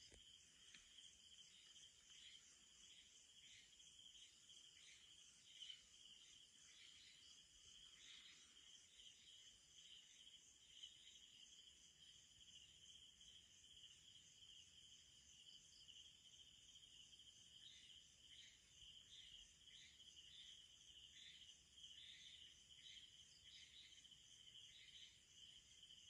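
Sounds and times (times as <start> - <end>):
night insects trilling: 0.0 - 26.0.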